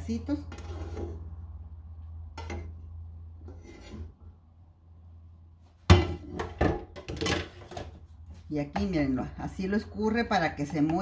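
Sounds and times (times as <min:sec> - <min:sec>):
metal cookware scraping: 0:00.0 - 0:01.4, 0:02.3 - 0:04.2.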